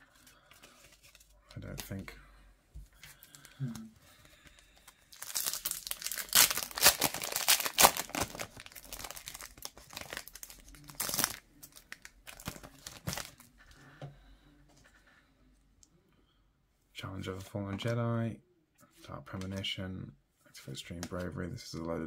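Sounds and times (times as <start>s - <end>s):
wrapper tearing and crinkling: 5.1s - 13.5s.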